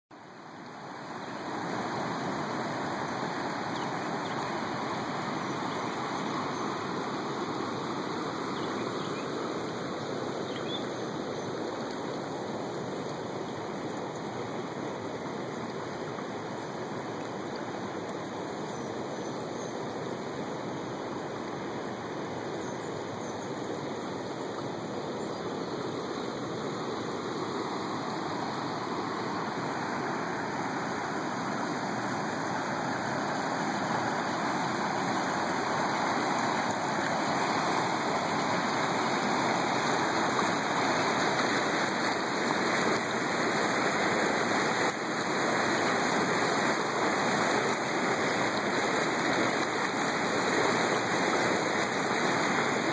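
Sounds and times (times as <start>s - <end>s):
floodwater rushing over a dam: 0.2s - 52.9s.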